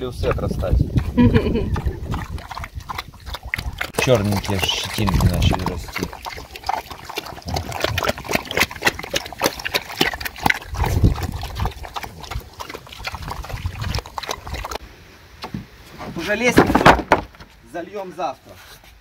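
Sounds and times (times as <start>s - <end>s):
pigs slurping wet feed: 0.0s - 14.8s
pigs grunting: 0.3s - 14.8s.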